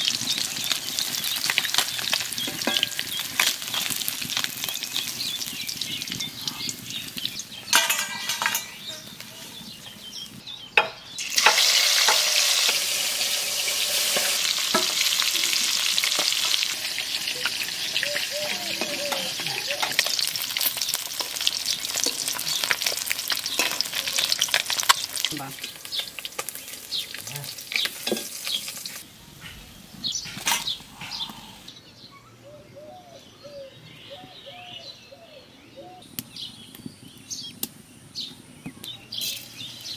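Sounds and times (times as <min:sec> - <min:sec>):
fish sizzling in hot oil: 0:00.0 - 0:10.0, 0:11.2 - 0:29.0, 0:39.1 - 0:39.9
metal utensils scraping a pan: 0:01.6 - 0:04.0, 0:07.7 - 0:09.2, 0:10.8 - 0:16.6, 0:21.4 - 0:25.7, 0:27.7 - 0:29.6.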